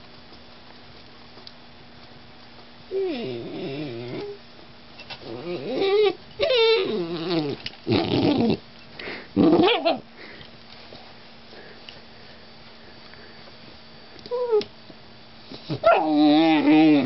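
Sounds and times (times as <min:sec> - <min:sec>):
puppy grumbling: 0:02.9 - 0:04.4, 0:05.2 - 0:08.6, 0:09.4 - 0:10.1, 0:15.7 - 0:17.0
puppy whining: 0:02.9 - 0:04.4, 0:05.1 - 0:08.6, 0:09.4 - 0:10.1, 0:14.3 - 0:14.7, 0:15.5 - 0:17.0.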